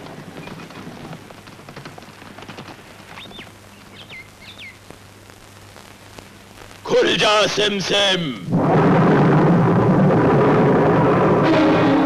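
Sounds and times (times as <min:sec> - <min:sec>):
old film soundtrack hiss and hum: 0:00.0 - 0:12.0
bird chirps: 0:03.1 - 0:04.8.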